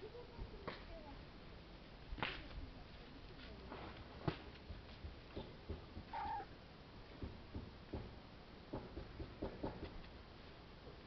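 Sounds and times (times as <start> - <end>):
cat meowing: 6.1 - 6.5.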